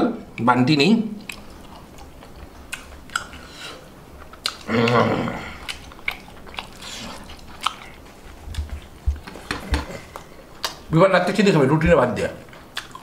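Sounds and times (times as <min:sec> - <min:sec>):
wet mouth clicks and smacks: 0:01.2 - 0:01.6, 0:02.7 - 0:03.5, 0:10.1 - 0:10.9, 0:12.6 - 0:13.0
person chewing: 0:01.2 - 0:10.9, 0:12.4 - 0:13.0.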